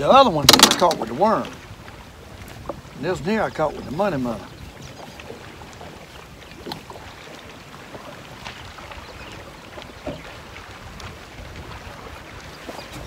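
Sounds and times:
water against boat: 0.0s - 13.0s
wind rumble on microphone: 0.0s - 13.0s
clicks and taps handling fish: 0.5s - 1.2s.

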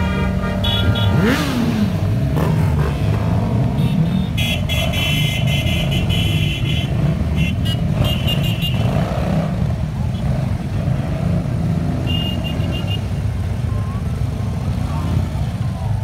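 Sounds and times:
horn sounding: 0.0s - 1.8s, 3.7s - 9.0s, 12.0s - 13.2s
motorcycle engines rumbling: 0.0s - 16.0s
engine revving: 0.3s - 4.0s.

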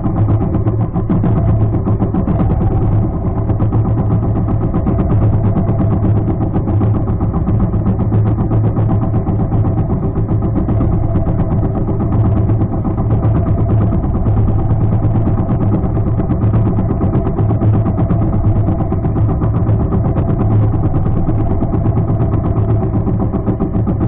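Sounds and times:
boat engine droning: 0.0s - 24.0s.

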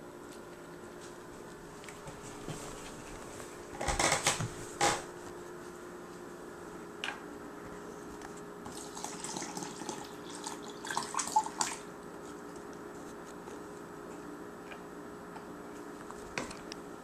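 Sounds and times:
water pouring and splashing into tub: 8.7s - 11.8s.

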